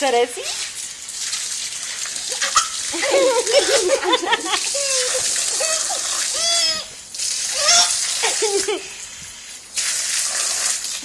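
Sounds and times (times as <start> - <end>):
water jet splattering on tiles: 0.0 - 11.0
baby squealing: 4.7 - 8.2.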